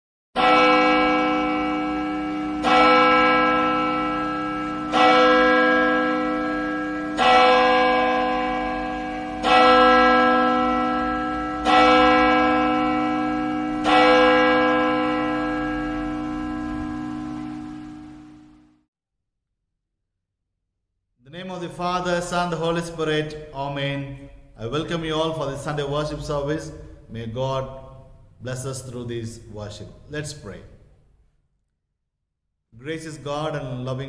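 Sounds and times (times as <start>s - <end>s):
church bell tolling: 0.4s - 18.7s, 22.0s - 29.0s.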